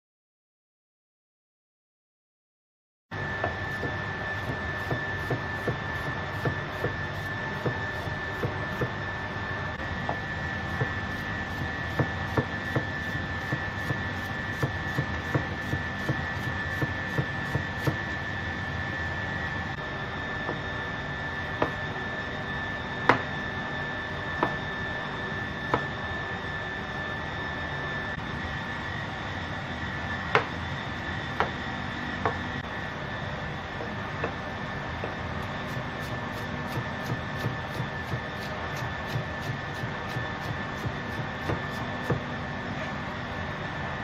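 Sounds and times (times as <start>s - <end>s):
faint high whine: 16.5s - 37.5s.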